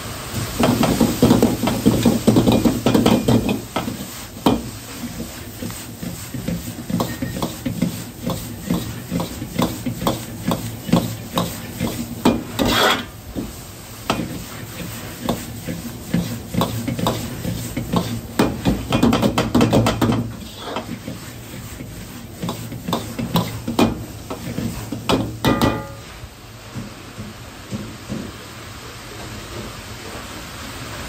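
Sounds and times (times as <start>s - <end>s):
gas burner hum: 0.0s - 31.0s
metal ladle clanking on wok: 25.1s - 26.1s.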